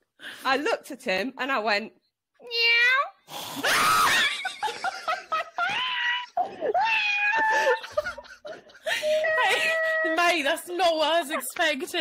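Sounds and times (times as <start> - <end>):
shrieking laugh: 3.6 - 10.1
women laughing: 3.7 - 10.4, 11.0 - 12.0.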